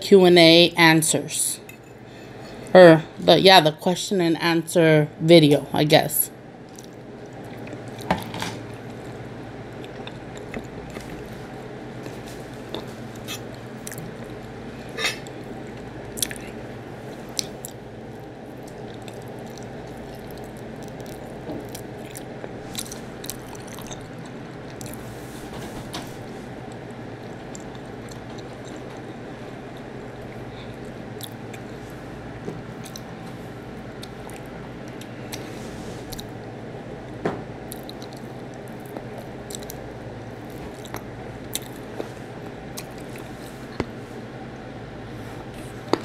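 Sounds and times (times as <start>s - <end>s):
steady low hum: 0.0s - 46.0s
wet chewing and smacking: 6.7s - 8.1s, 8.7s - 14.6s, 15.2s - 25.0s, 26.7s - 33.1s, 33.9s - 35.4s, 37.6s - 44.0s.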